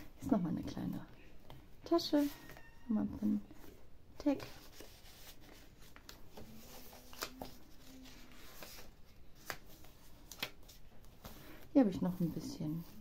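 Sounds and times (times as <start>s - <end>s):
paper rustling: 4.3s - 13.0s.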